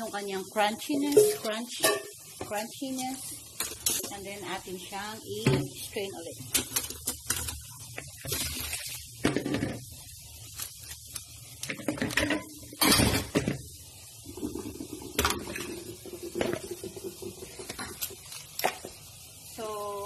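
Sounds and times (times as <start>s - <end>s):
plastic bowl clattering in metal sink: 6.5s - 9.8s, 11.7s - 13.6s, 14.4s - 18.1s.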